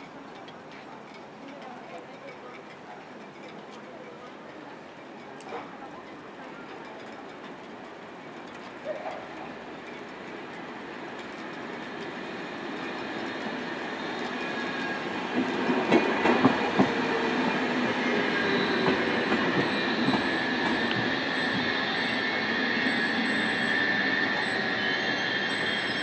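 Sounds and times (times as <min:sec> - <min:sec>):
electric locomotive passing: 0:02.7 - 0:26.0
wheels clacking over rail joints: 0:05.2 - 0:21.1
high-pitched wheel squeal: 0:18.3 - 0:26.0.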